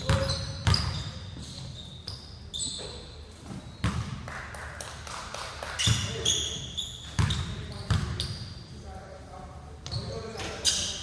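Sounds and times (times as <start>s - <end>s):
basketball bouncing on hardwood floor: 0.0s - 0.9s, 3.8s - 4.2s, 7.2s - 8.2s.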